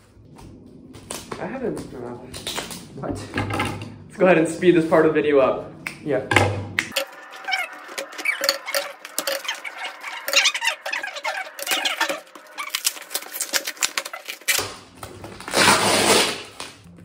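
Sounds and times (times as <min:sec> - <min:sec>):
sped-up squeaky voices: 0:07.0 - 0:14.2.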